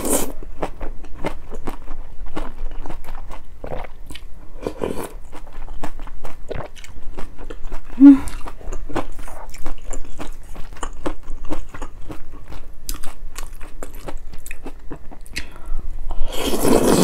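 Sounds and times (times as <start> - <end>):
crunchy chewing: 0.0 - 15.4
slurping from a spoon: 16.2 - 17.0.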